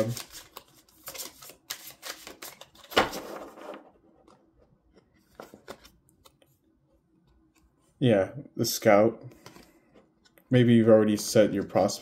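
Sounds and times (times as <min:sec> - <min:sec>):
cards being shuffled: 0:00.0 - 0:03.8.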